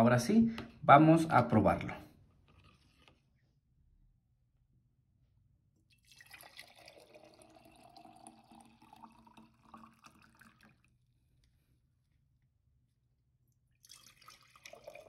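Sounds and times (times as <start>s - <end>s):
juice pouring into glass: 5.9s - 11.1s, 13.7s - 15.0s.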